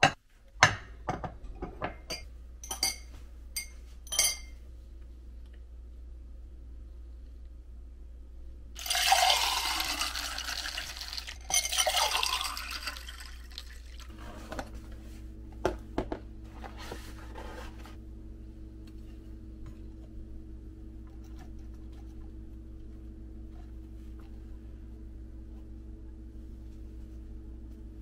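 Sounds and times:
steady low hum: 0.0 - 28.0
water running: 8.8 - 14.1.

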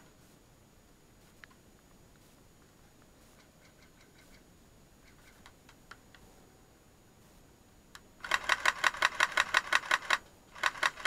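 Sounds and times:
airsoft gun firing full auto: 8.2 - 11.0.

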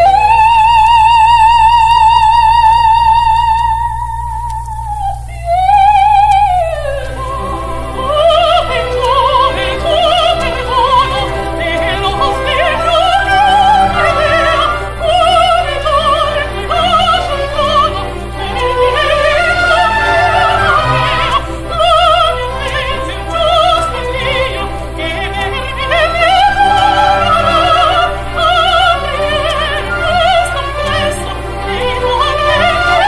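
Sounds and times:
low hum: 0.0 - 33.0
operatic duet singing: 0.0 - 33.0
orchestra accompaniment: 7.0 - 33.0.

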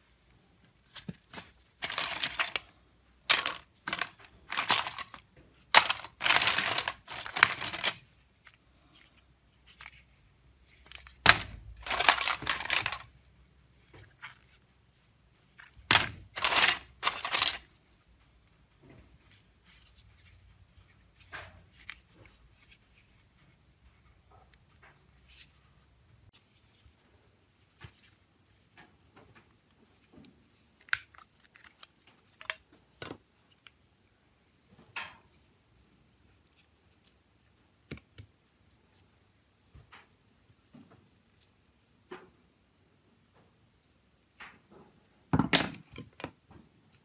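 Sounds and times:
phones and circuit boards clattering: 5.8 - 8.0, 11.8 - 13.1, 15.9 - 17.7.

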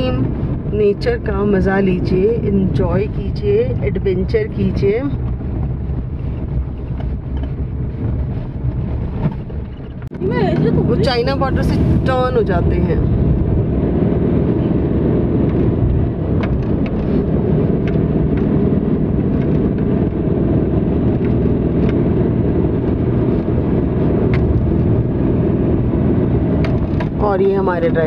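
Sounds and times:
engine and tyre drone in car: 0.0 - 28.0.

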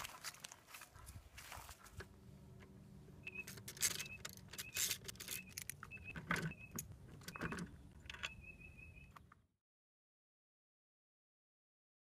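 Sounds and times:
metal tools clinking: 3.3 - 8.4.

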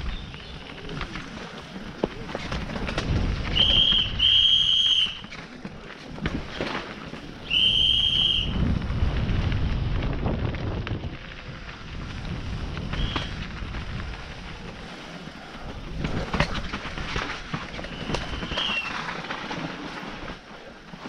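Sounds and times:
wind noise on microphone: 0.0 - 20.4
shrill whistle blasts: 3.5 - 5.2, 7.4 - 8.5, 17.9 - 19.0.

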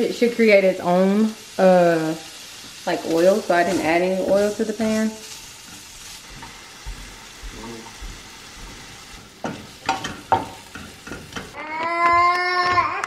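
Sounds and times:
sausage sizzling in a frying pan: 0.0 - 13.0
wooden spatula scraping a pan: 3.0 - 6.6.

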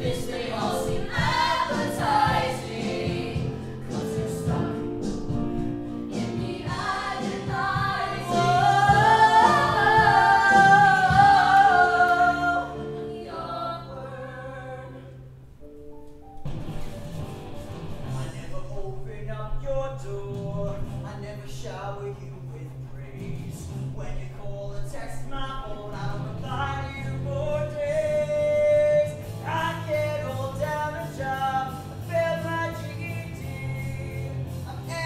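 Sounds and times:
ensemble singing: 0.0 - 15.9, 18.0 - 35.0
instrumental accompaniment: 0.0 - 18.4.

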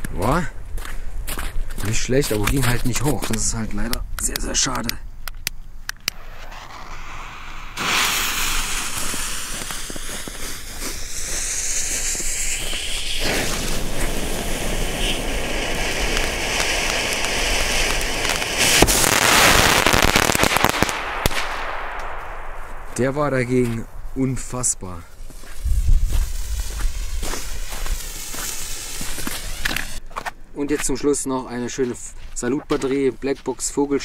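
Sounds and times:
firework hissing and crackling: 5.9 - 30.0.

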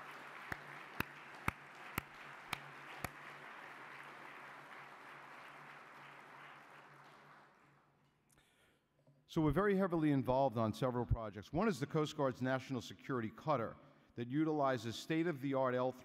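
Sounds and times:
audience applauding: 0.0 - 7.8
loud sharp claps: 0.0 - 7.9.

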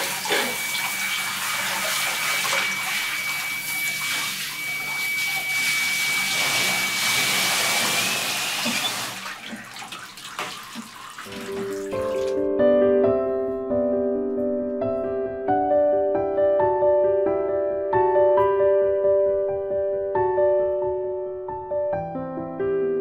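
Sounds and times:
shower spraying water: 0.0 - 12.4
water dripping and splashing: 0.0 - 12.4
thin high whistle: 2.7 - 9.1.

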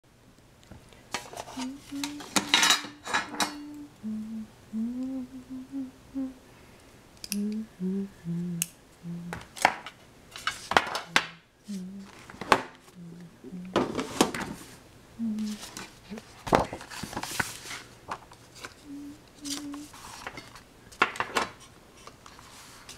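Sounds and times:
dishes and utensils clattering: 1.2 - 3.7
person humming slow tune: 1.5 - 6.5, 7.2 - 9.5, 11.0 - 12.2, 12.9 - 14.1, 15.1 - 16.2, 18.8 - 20.0.

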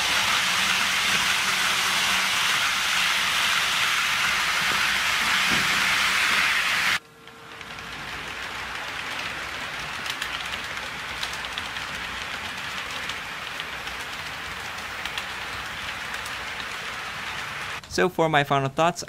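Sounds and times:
model train wheels rolling hiss: 0.0 - 17.8
wheels clicking over rail joints: 7.2 - 17.9.

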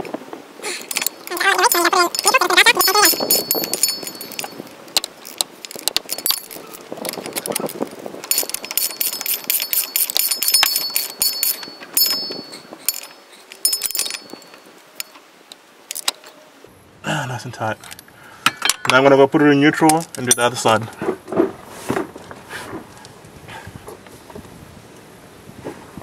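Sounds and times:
metal tools clinking: 0.6 - 16.4, 17.8 - 19.1, 19.7 - 21.0
socket ratchet clicking: 0.8 - 15.1.

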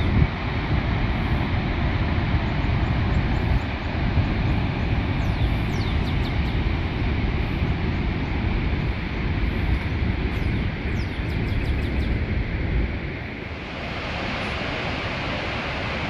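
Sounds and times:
waterfall roar: 0.0 - 11.6, 12.2 - 16.0
wind buffeting microphone: 0.0 - 16.0.

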